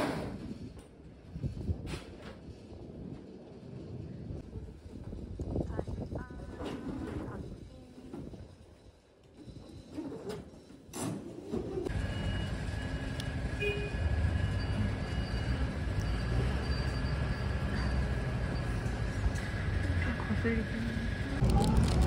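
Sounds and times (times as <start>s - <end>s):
vehicle engine rumble with whine: 11.8s - 22.0s.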